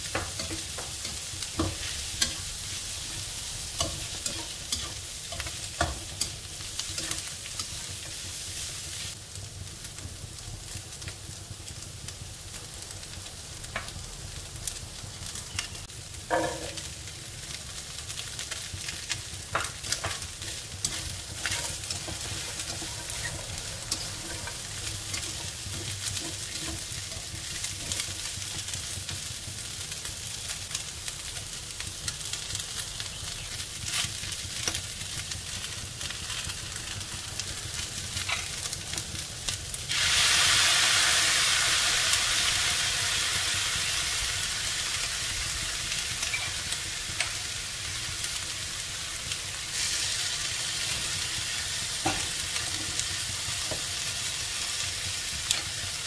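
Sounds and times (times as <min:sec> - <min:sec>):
food sizzling in a wok: 0:00.0 - 0:56.0
spatula scraping a pan: 0:00.1 - 0:07.7, 0:19.6 - 0:28.5.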